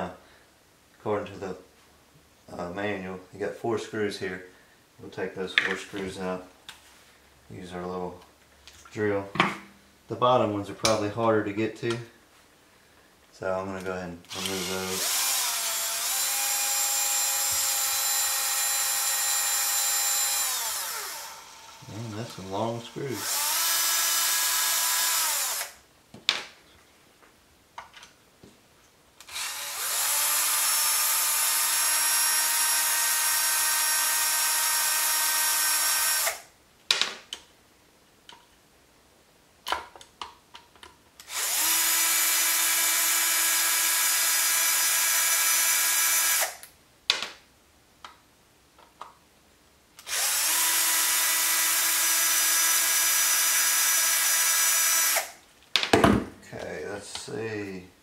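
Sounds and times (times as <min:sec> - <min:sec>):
power drill motor whine: 0:14.3 - 0:25.8, 0:29.2 - 0:36.4, 0:41.3 - 0:46.6, 0:50.0 - 0:55.3.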